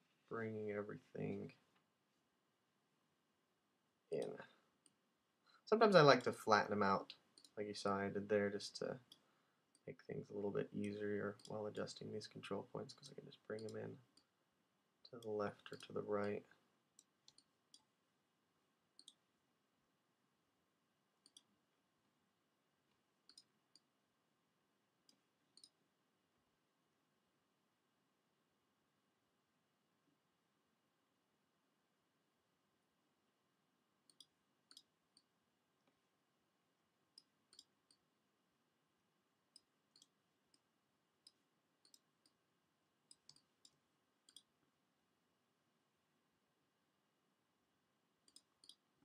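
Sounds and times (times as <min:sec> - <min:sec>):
computer mouse clicks: 0:07.1 - 0:07.6, 0:13.0 - 0:14.3, 0:17.0 - 0:17.9, 0:19.0 - 0:19.2, 0:21.2 - 0:21.5, 0:23.3 - 0:23.9, 0:25.1 - 0:25.8, 0:34.1 - 0:35.3, 0:37.2 - 0:38.0, 0:39.5 - 0:40.6, 0:41.2 - 0:42.4, 0:43.1 - 0:44.5, 0:48.2 - 0:48.8.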